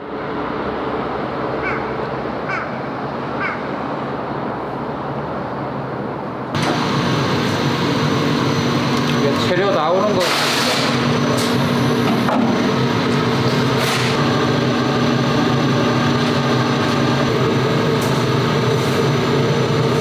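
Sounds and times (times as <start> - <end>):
outdoor background noise: 0.0 - 9.5
factory machinery hum: 0.0 - 20.0.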